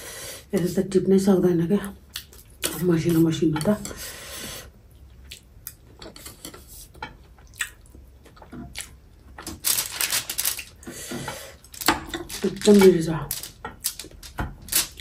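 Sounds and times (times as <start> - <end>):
rustling scrape: 6.2 - 7.0, 9.5 - 15.0
metal chopsticks tapping on foil: 11.7 - 15.0.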